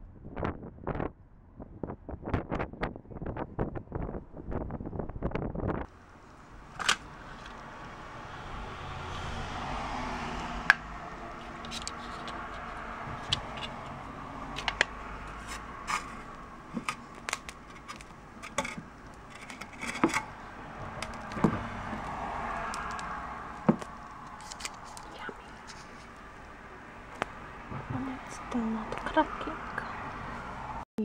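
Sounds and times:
plastic lid and foil crinkling: 14.6s - 20.3s, 23.7s - 26.1s.

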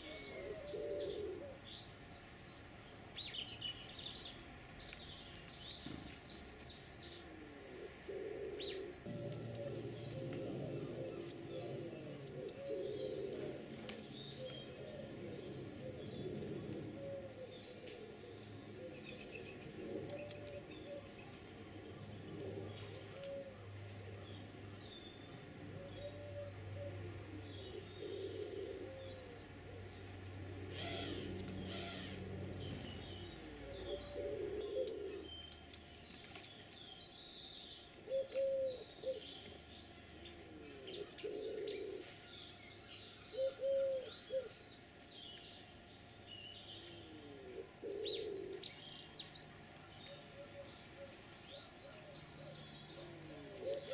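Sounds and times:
pigeon cooing: 0.0s - 1.6s, 7.1s - 24.3s, 25.6s - 35.8s, 38.0s - 39.6s, 40.2s - 42.1s, 43.3s - 44.6s, 46.7s - 48.8s, 50.0s - 53.9s
faint low hum: 0.0s - 53.9s
songbirds chirping: 0.0s - 53.9s.

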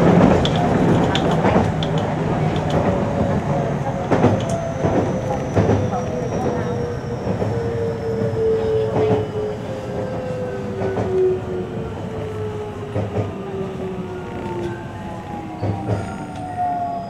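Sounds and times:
wheels clicking over rail joints: 0.0s - 3.4s
train running noise: 0.0s - 17.0s.

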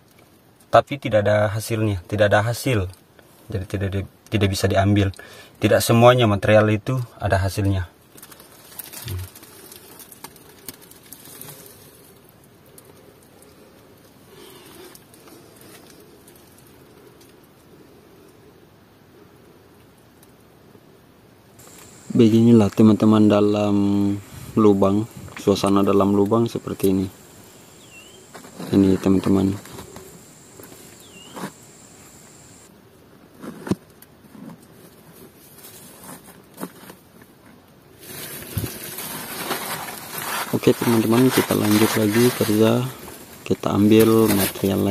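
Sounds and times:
steady faint hum: 9.2s - 33.0s
hissy noise: 21.6s - 32.7s, 38.2s - 44.9s
brief rustle: 38.0s - 43.2s.

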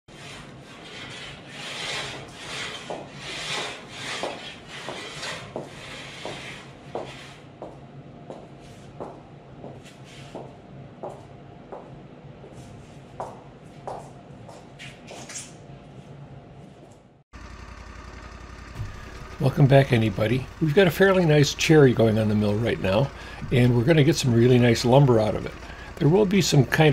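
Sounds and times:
hand saw cutting wood: 0.1s - 7.4s.

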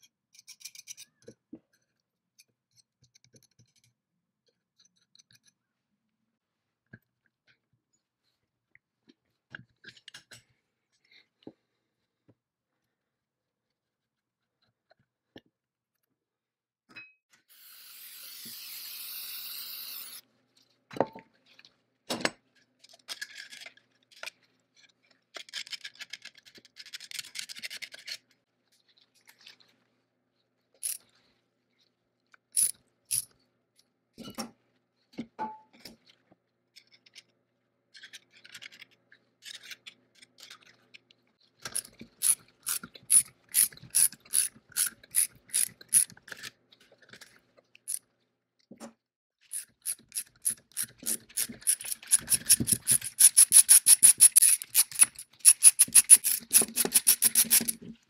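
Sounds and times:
ratchet wrench clicking: 41.8s - 46.1s, 49.5s - 57.8s.

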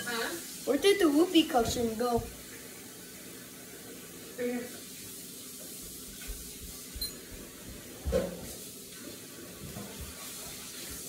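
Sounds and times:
footsteps on hard floor: 1.6s - 2.4s.

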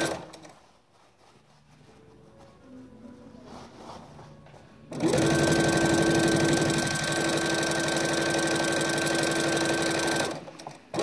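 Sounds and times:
sewing machine motor whine: 4.9s - 11.0s.

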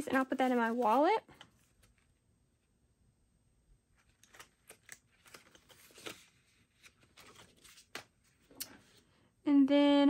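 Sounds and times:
banknotes rustling and clicking: 4.0s - 8.9s.

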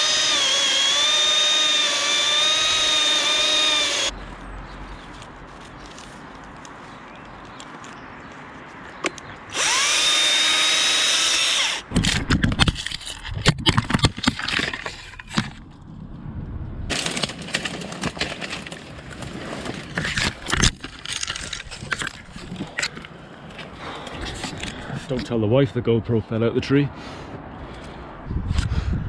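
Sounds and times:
chainsaw whirring: 0.0s - 4.2s, 9.5s - 11.9s
camera tumbling through branches: 4.2s - 8.8s, 16.9s - 22.9s.

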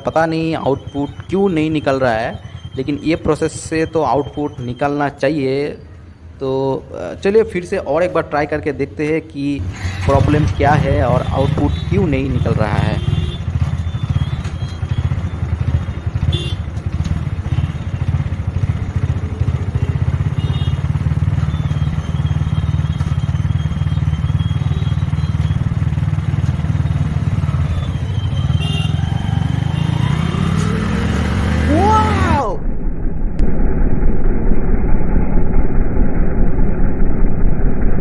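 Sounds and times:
motorcycle engine running: 10.1s - 32.4s.

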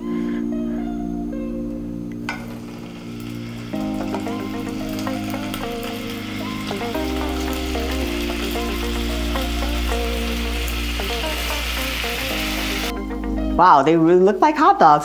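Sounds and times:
background music: 0.0s - 15.0s
carrots sizzling in hot oil: 2.3s - 12.9s.

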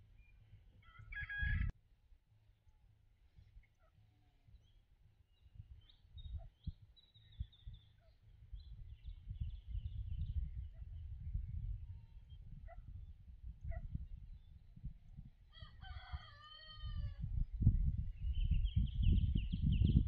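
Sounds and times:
wind rumble on microphone: 0.0s - 1.7s, 3.2s - 20.0s
small birds chirping: 3.4s - 15.2s.

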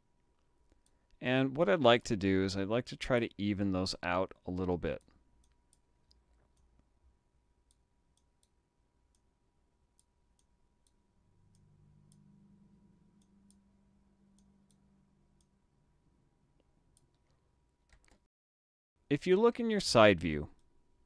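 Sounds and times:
faint low hum: 0.0s - 18.3s
computer mouse clicks: 16.6s - 18.3s.

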